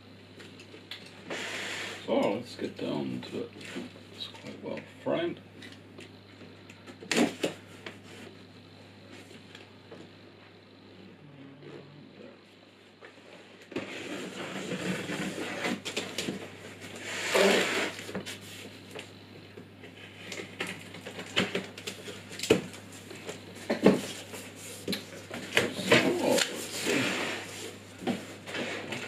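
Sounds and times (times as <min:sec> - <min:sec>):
cardboard flaps rustling and scraping: 0:13.7 - 0:18.8.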